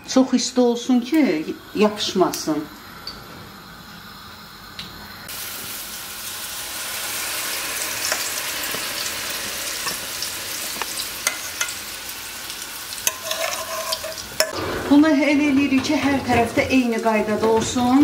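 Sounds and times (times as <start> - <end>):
batter sizzling in hot butter: 5.3 - 14.6
spoon scraping and tapping pan: 10.8 - 11.8, 13.0 - 14.6.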